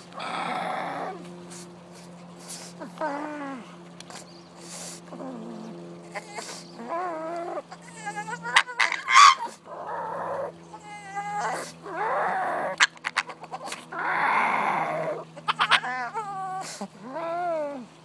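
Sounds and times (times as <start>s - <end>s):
dog warbling cries: 0.1s - 1.2s, 5.2s - 17.9s.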